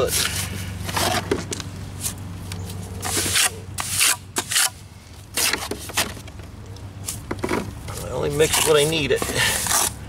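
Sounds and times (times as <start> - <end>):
trowel scraping wet cement: 3.0 - 4.8, 5.4 - 6.1, 8.0 - 10.0.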